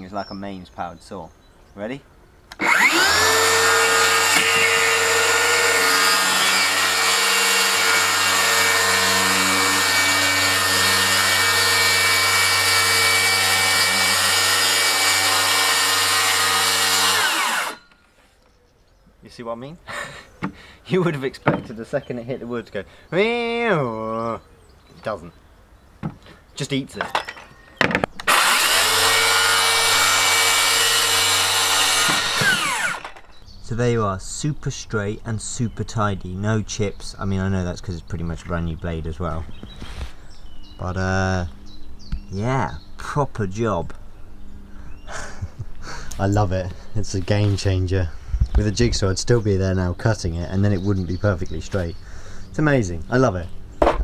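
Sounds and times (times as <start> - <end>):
saw clicks: 2.5 - 3.5, 28.2 - 33.3
circular saw cutting wood: 2.5 - 17.9, 28.1 - 33.4.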